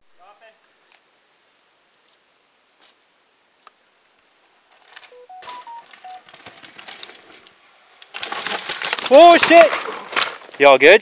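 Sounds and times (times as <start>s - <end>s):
short beeps: 5.1s - 6.2s
mountain bike tyre noise: 5.9s - 11.0s.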